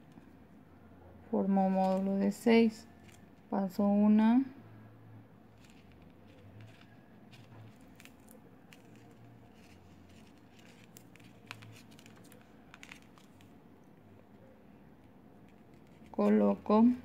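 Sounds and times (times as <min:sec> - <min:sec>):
beads clicking and rustling: 0:01.7 - 0:03.5, 0:05.5 - 0:13.6.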